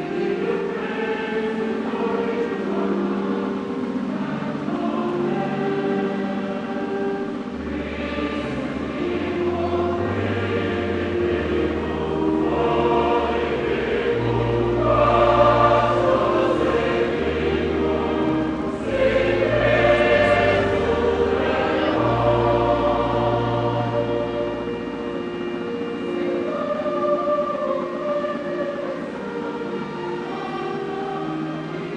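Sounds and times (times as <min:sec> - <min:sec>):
choir singing a hymn: 0:00.0 - 0:31.9
held bass notes: 0:07.3 - 0:27.0.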